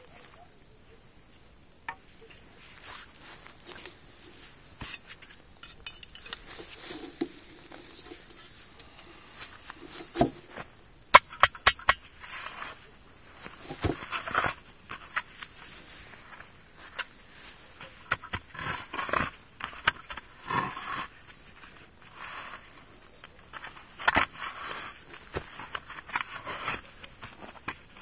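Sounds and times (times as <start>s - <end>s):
hand auger scraping soil: 6.2s - 10.7s, 17.6s - 28.0s.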